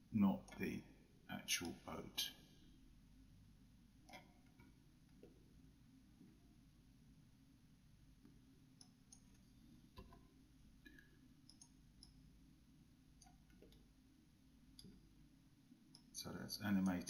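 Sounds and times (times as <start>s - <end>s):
low background hum: 0.0s - 17.0s
computer mouse clicks: 8.8s - 9.4s, 10.9s - 12.2s, 13.2s - 13.9s.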